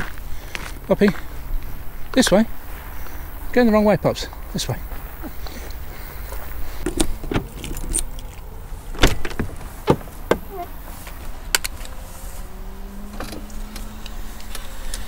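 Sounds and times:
faint low whir: 4.3s - 15.0s
keys jangling: 6.9s - 8.5s.

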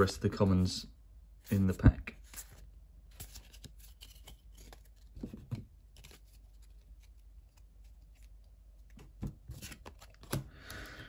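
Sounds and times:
cards sliding and flicking: 2.2s - 10.5s.

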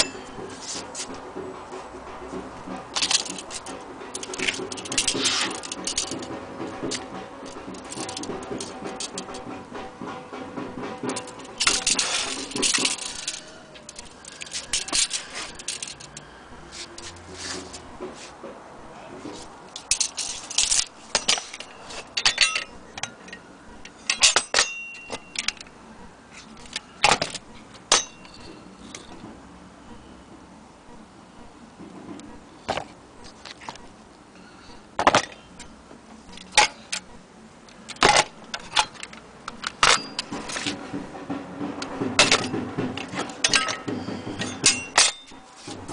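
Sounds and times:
small metal parts clacking: 2.9s - 9.4s, 11.0s - 16.3s, 19.7s - 25.7s, 26.3s - 29.2s, 36.3s - 37.1s, 37.7s - 40.8s, 41.8s - 45.9s
metal objects clinking and rattling: 2.9s - 9.5s, 11.0s - 16.3s, 19.8s - 25.7s, 26.5s - 29.2s, 37.9s - 41.0s, 41.8s - 45.9s.

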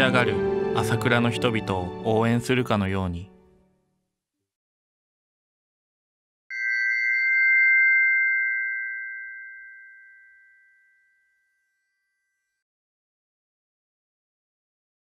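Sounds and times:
struck chime ringing: 6.5s - 12.4s.

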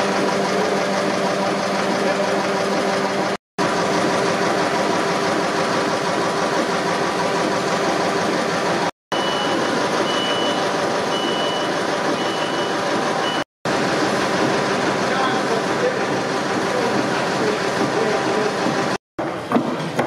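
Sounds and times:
engine mechanical running noise: 0.0s - 19.0s
machinery running: 0.0s - 19.6s
high electronic beep: 9.1s - 13.5s.

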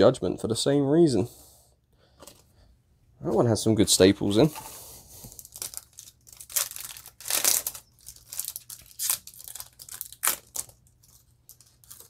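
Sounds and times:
foil wrapper tearing and crinkling: 5.3s - 12.0s.

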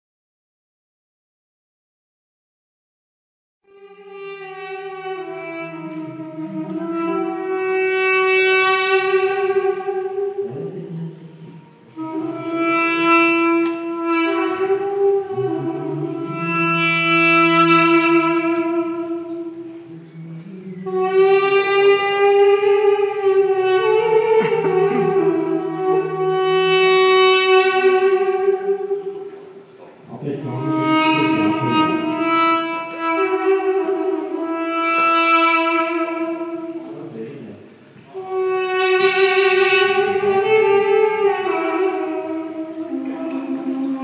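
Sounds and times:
duduk playing slow melody: 3.6s - 44.0s.

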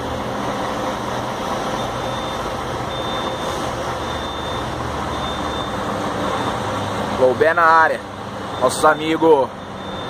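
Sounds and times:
diesel engine idling: 0.0s - 10.0s
high electronic warning beep: 1.8s - 7.8s, 8.5s - 10.0s.

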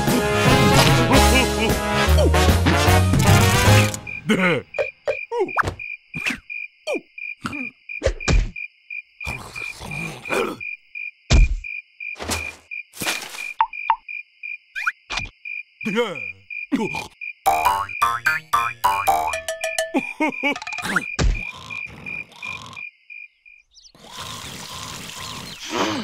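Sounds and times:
crickets chirping: 3.6s - 26.0s.

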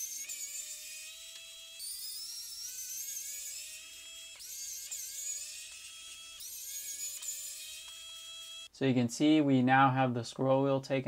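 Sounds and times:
electric screwdriver whirring: 0.0s - 8.7s.

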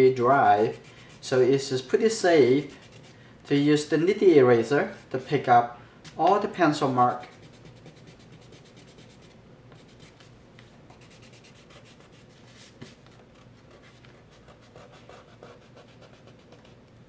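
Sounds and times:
eraser rubbing on paper: 7.2s - 10.2s, 10.9s - 13.0s, 13.7s - 16.8s.

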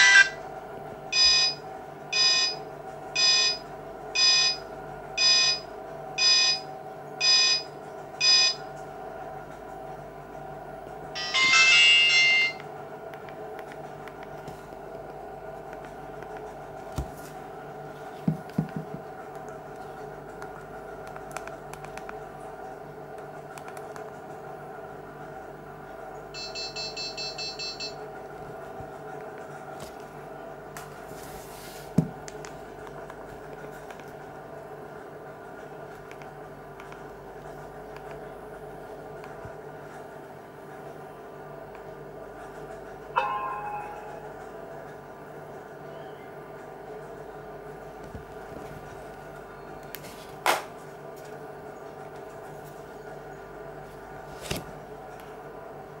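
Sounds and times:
high electronic beeps: 0.0s - 0.4s
low steady hum: 0.0s - 56.0s.

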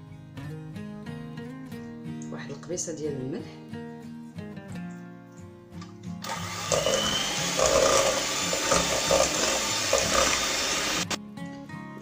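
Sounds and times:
electric hand mixer running: 6.2s - 11.2s.

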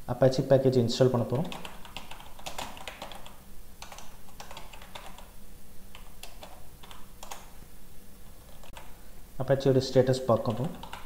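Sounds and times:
faint steady hum: 0.0s - 11.0s
keyboard typing clicks: 1.5s - 5.3s, 5.9s - 7.5s, 8.5s - 9.0s, 10.5s - 11.0s.

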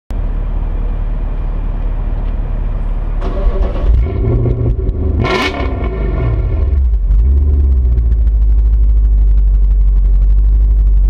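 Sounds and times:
car engine idling and revving: 0.1s - 11.0s.

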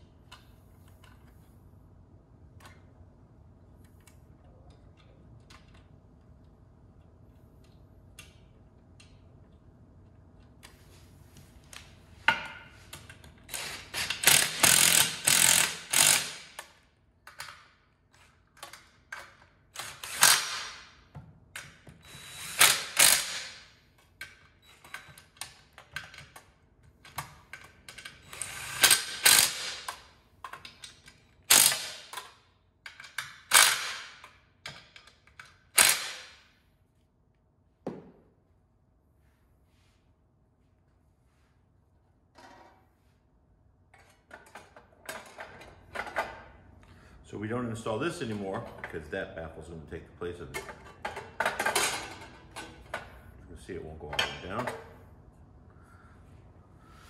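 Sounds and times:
cordless power driver: 13.5s - 16.6s, 22.0s - 23.5s, 28.3s - 29.8s.

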